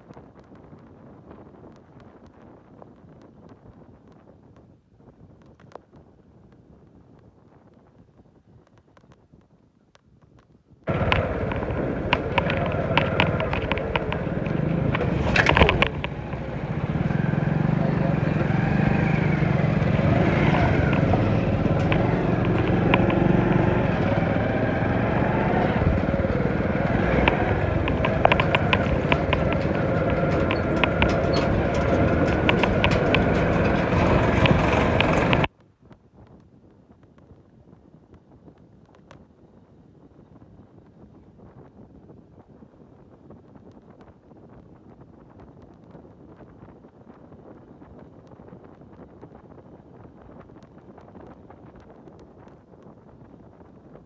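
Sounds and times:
road and wind noise: 0.0s - 54.0s
motorcycle engine rumble: 10.9s - 35.5s
sharp knocks and rattles: 10.9s - 35.5s.

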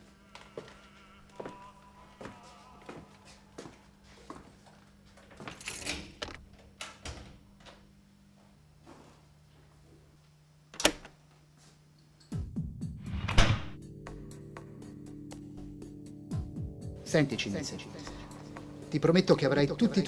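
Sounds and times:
low droning music: 12.3s - 20.0s
louder film music: 12.4s - 20.0s.

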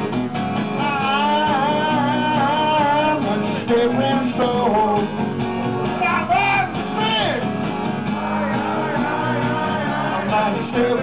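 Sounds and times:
strummed acoustic guitar: 0.0s - 11.0s
man singing: 0.8s - 5.2s, 8.1s - 11.0s.

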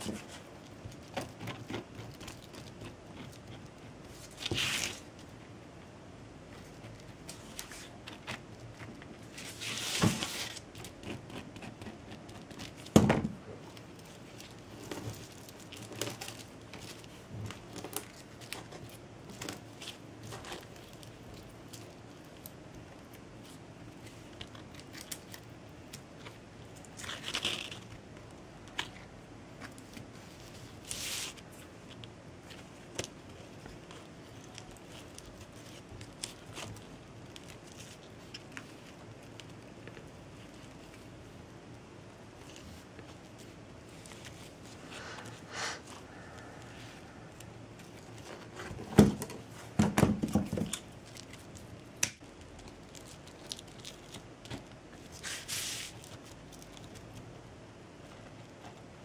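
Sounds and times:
cord rustling: 13.6s - 41.4s, 42.3s - 57.3s.

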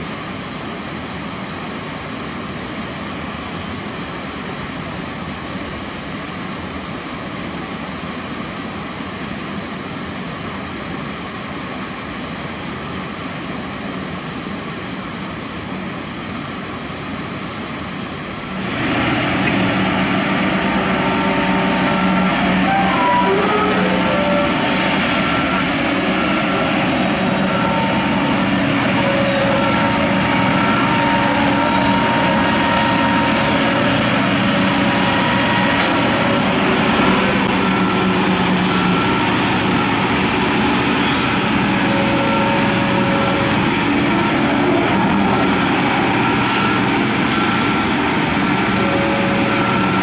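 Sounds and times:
excavator diesel engine running: 17.7s - 50.0s.

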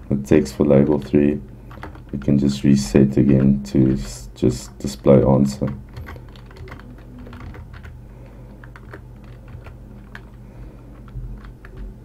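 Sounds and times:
faint low hum: 0.0s - 12.0s
keyboard keystrokes: 5.6s - 12.0s.

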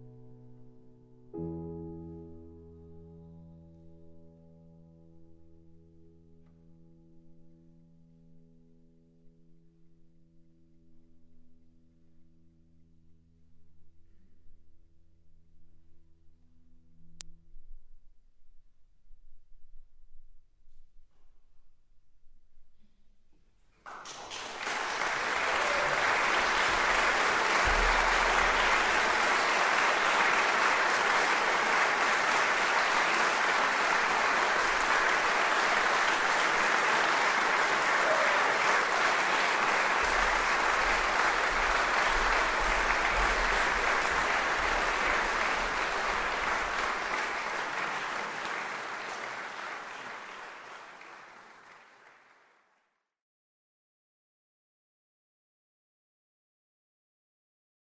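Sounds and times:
audience applauding: 23.8s - 52.9s.

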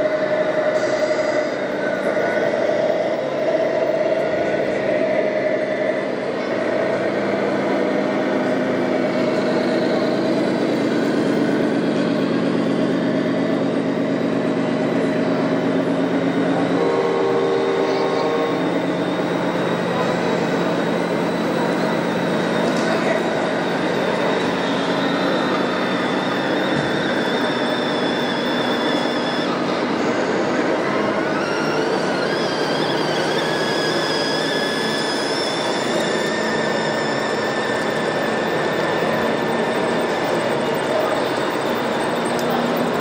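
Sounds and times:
crowd chatter: 0.0s - 43.0s
model engine drone: 0.0s - 43.0s
horn-like tone: 16.4s - 20.4s.

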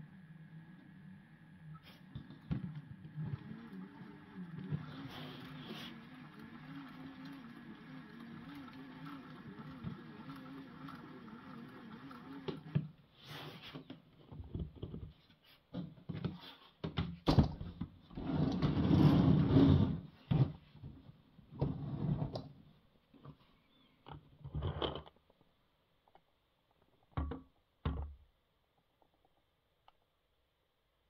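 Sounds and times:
motor whirring: 3.0s - 12.8s.

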